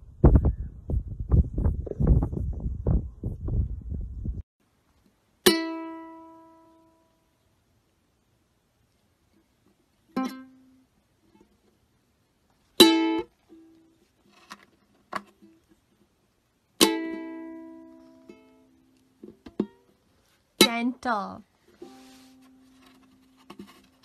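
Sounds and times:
ukulele strums: 5.4 - 7.0, 10.1 - 11.5, 12.8 - 15.8, 16.8 - 20.0, 20.6 - 24.0.

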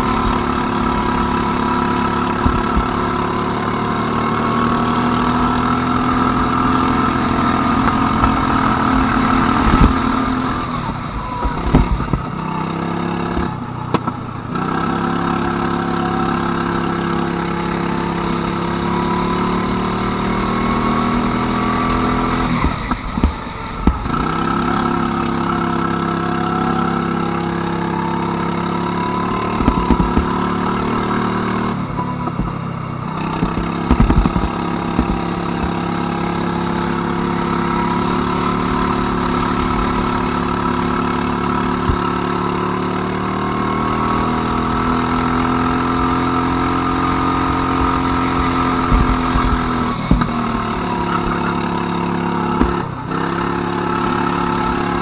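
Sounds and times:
go-kart engine revving: 0.0 - 55.0
sharp knocks: 29.6 - 30.4, 33.4 - 35.8, 48.9 - 50.4, 52.6 - 52.9.

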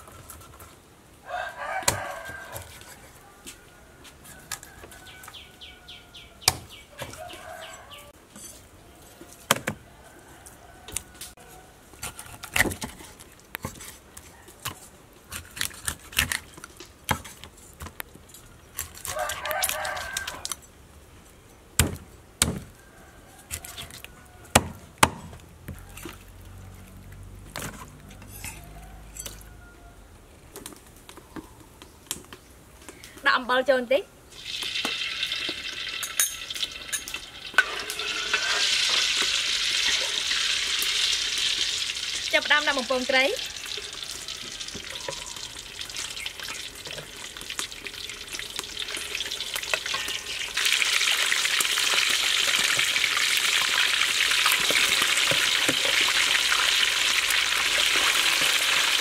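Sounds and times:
rooster crowing: 1.2 - 8.2, 9.8 - 11.8, 19.1 - 20.6, 28.2 - 30.2, 37.2 - 40.7, 43.2 - 45.6.

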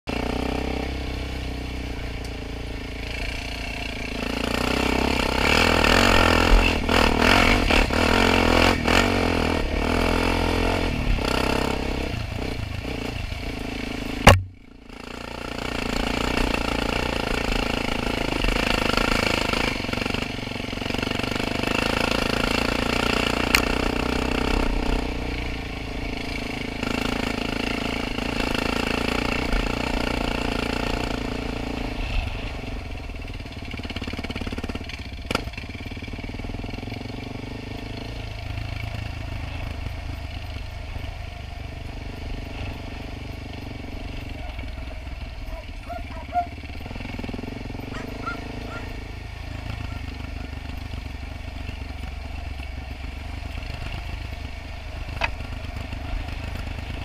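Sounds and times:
quad bike engine revving: 0.1 - 57.0
clatter over bumps: 14.2 - 20.3, 42.4 - 57.0
sharp click: 14.3 - 14.7.

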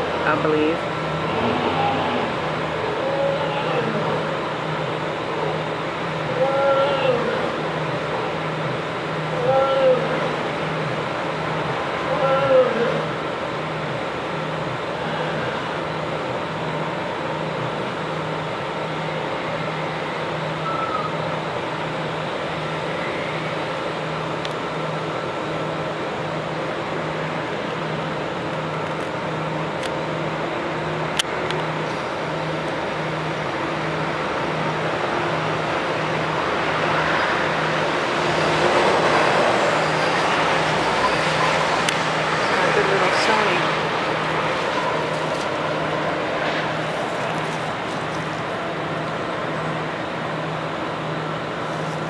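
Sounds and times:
low drone: 0.0 - 52.0
mechanical hum: 0.0 - 52.0
faint high tone: 20.6 - 21.3.

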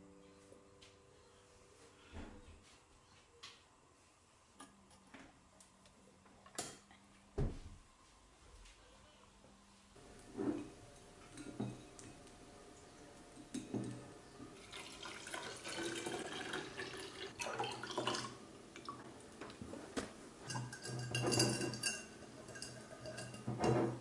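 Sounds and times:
milk pouring into bottle: 14.5 - 19.0.

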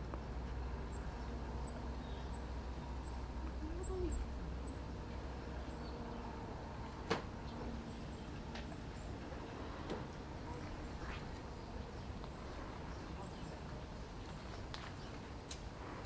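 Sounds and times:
low outdoor rumble: 0.0 - 16.0
low hooting call: 3.0 - 4.9.

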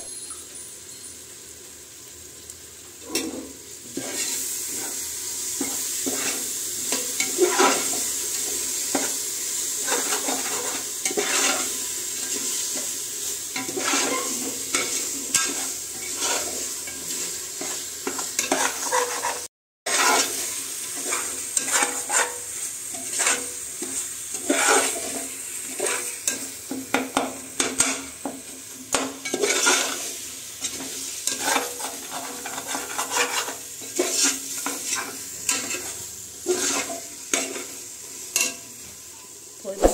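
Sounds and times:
food sizzling: 0.0 - 39.9
metal spoon scraping a pot: 9.8 - 12.9, 13.6 - 26.4, 28.9 - 30.0, 30.6 - 37.7.

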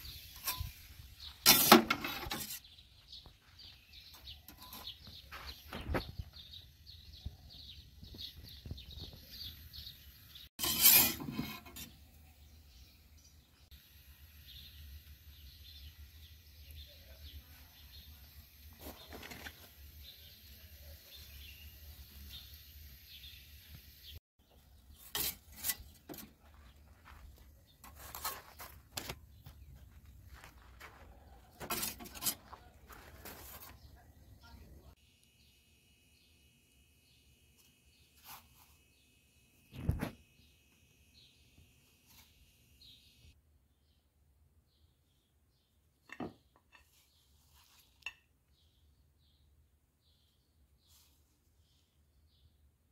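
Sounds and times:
small bird chirping: 2.4 - 10.5.

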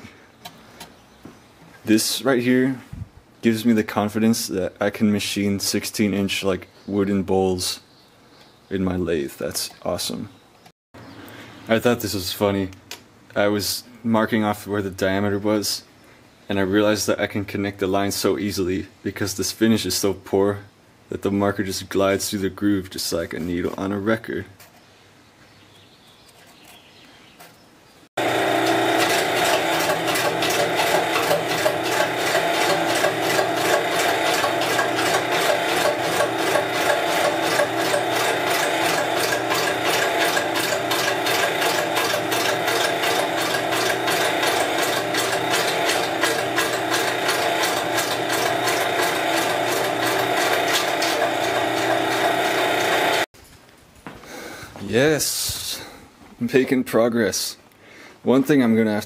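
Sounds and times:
lathe ticking clatter: 28.2 - 53.2
lathe gear hum: 28.2 - 53.3.

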